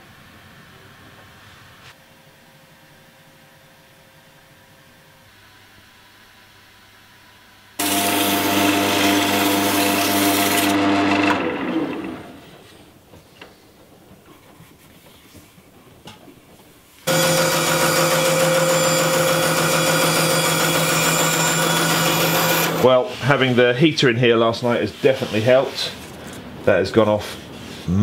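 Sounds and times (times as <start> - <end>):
bandsaw cutting wood: 7.8 - 12.5, 17.1 - 23.0
wood lathe motor running: 7.8 - 12.5, 17.1 - 23.0.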